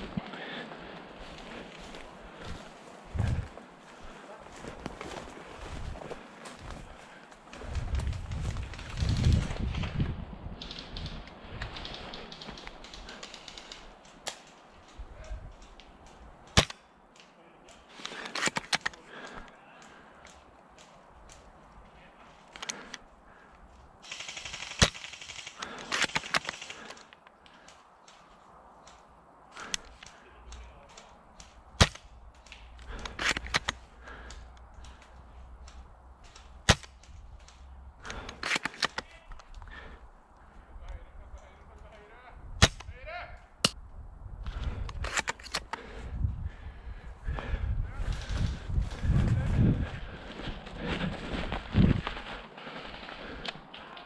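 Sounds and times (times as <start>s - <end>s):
small clicks and clatters: 10.6s - 16.2s.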